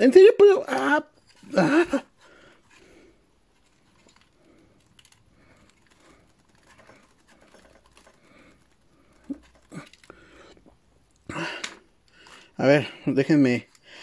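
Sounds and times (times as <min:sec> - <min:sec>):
plastic parts clicking: 0:03.6 - 0:12.6.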